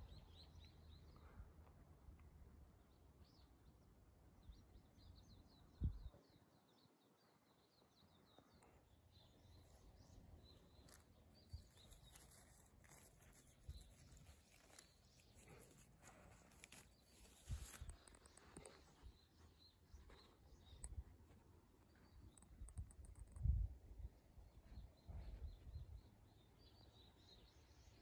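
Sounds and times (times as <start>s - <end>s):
small birds twittering: 2.8s - 23.4s
twigs and leaves rustling: 10.5s - 19.1s.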